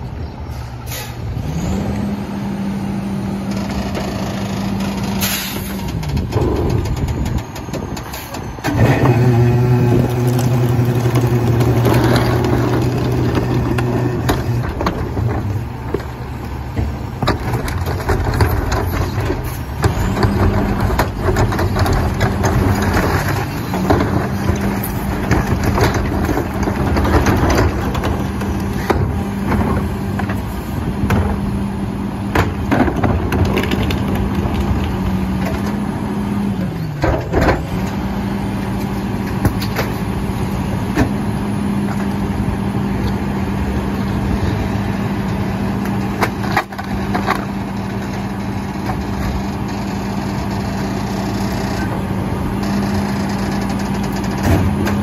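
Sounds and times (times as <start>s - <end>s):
garbage truck diesel engine: 0.0s - 55.0s
trash clattering against hopper: 4.9s - 42.4s, 53.7s - 55.0s.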